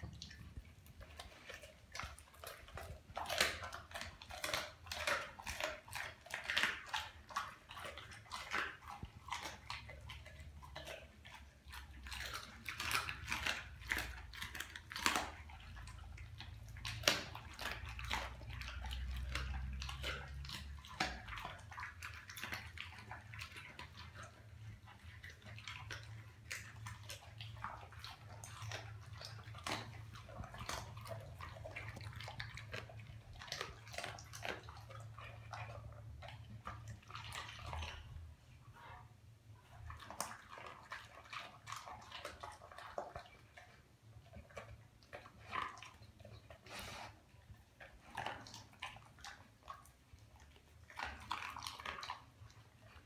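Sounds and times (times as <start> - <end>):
dog chewing and licking: 0.0 - 53.0.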